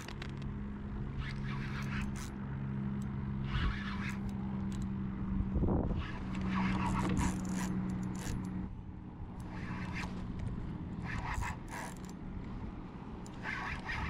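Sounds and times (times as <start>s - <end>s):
low hum: 0.0s - 14.0s
fishing reel whirring: 1.1s - 5.0s, 6.0s - 12.2s, 13.2s - 14.0s.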